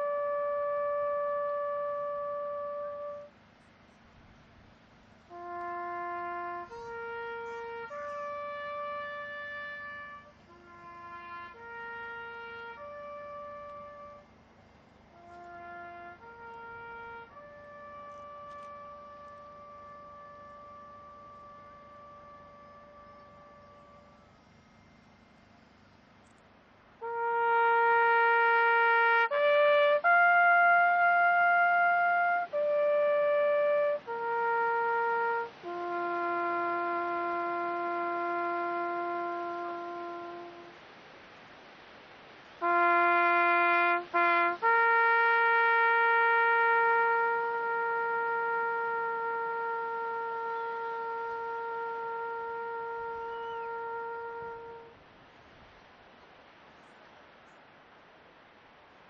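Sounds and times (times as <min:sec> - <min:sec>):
solo trumpet bugle call: 0:00.0 - 0:03.5, 0:05.1 - 0:41.1, 0:42.5 - 0:55.0.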